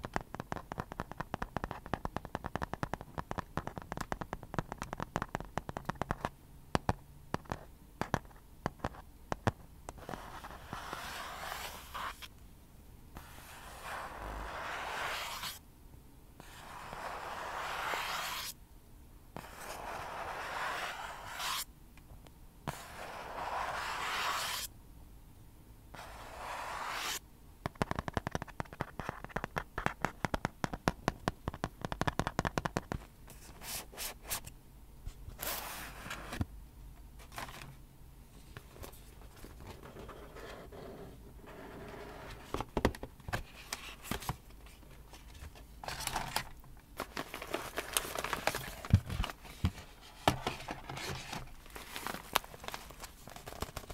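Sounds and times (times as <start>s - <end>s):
fingernails scratching cardboard: 10.0s - 12.3s, 13.2s - 15.6s, 16.4s - 18.5s, 19.4s - 21.6s, 22.7s - 24.7s, 26.0s - 27.2s.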